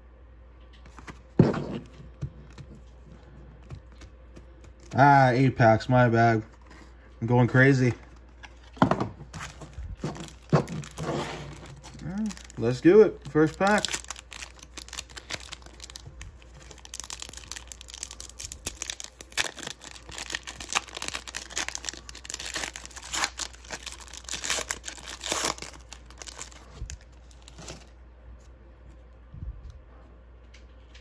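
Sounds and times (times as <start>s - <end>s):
faint handling of cards: 0.6s - 31.0s
foil wrapper crinkling and tearing: 9.3s - 27.9s.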